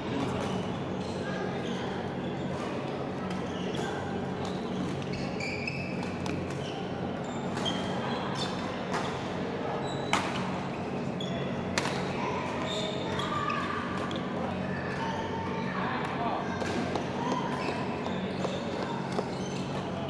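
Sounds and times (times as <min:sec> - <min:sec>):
shoes squeaking on court: 0:00.2 - 0:09.2, 0:12.6 - 0:14.4, 0:16.6 - 0:20.0.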